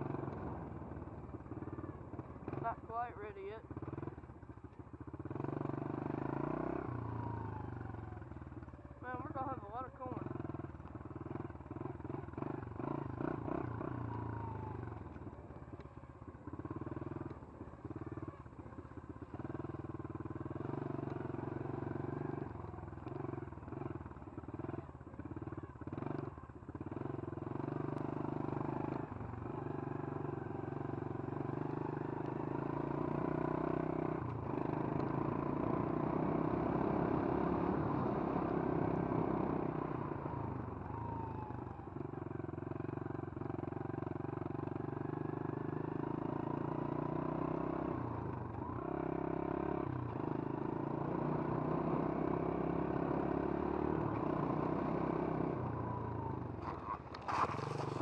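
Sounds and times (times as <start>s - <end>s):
small motorbike engine revving: 45.3s - 58.0s.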